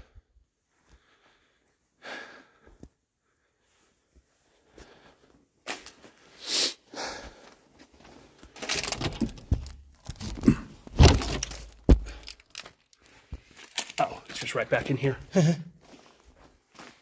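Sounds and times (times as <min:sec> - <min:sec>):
thumps and knocks in a bare room: 0:08.4 - 0:12.4.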